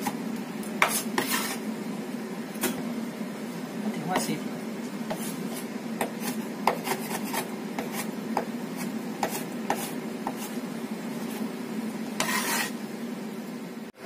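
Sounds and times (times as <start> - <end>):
scrape on cutting board: 0.8 - 1.7, 5.1 - 10.6, 11.2 - 11.5, 12.2 - 12.8.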